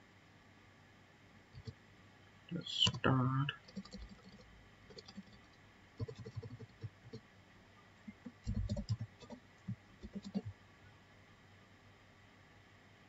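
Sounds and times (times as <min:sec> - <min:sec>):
computer keyboard typing: 0:01.6 - 0:01.8, 0:02.8 - 0:07.2, 0:08.1 - 0:09.4, 0:10.0 - 0:10.5.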